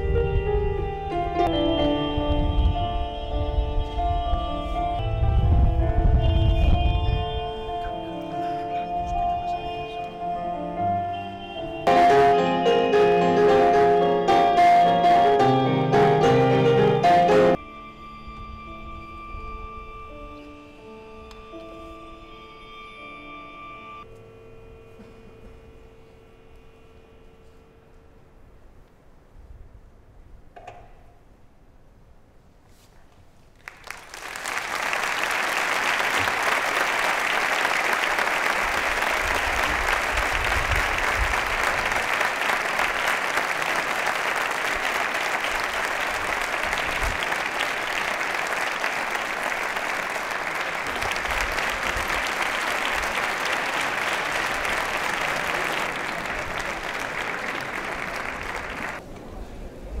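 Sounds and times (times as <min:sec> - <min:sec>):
large audience applauding: 0:33.6 - 0:59.0.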